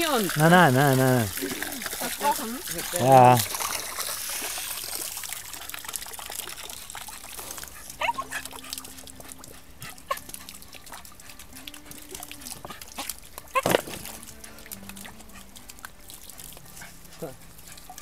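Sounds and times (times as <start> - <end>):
hose splashing into pool: 0.0 - 18.0
dog yipping: 7.8 - 14.1.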